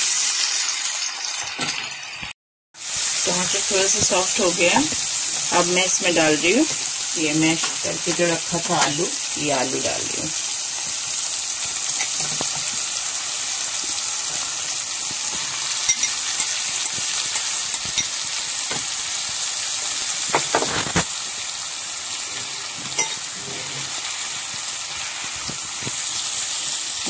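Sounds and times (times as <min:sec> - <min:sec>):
vegetables sizzling in oil: 0:00.0 - 0:27.0.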